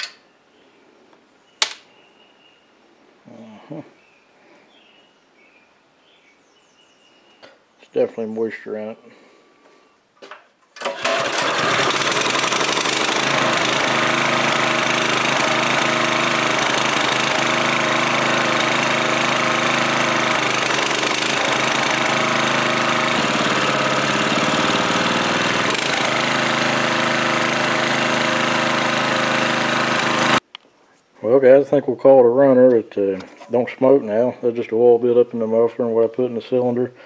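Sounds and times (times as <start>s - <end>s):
small engine fast idle: 10.8s - 30.4s.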